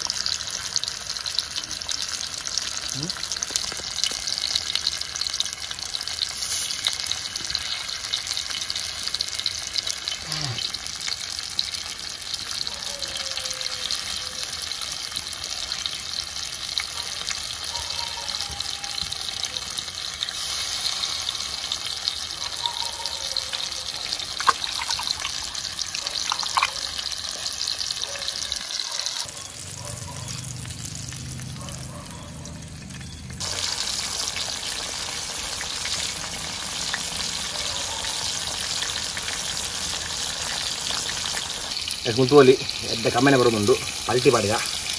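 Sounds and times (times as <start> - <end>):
steady hissing: 20.2 - 21.6.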